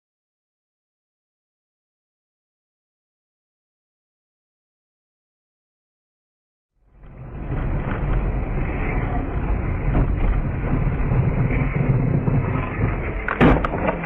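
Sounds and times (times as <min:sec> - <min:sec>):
car engine and road noise: 0:06.8 - 0:14.0.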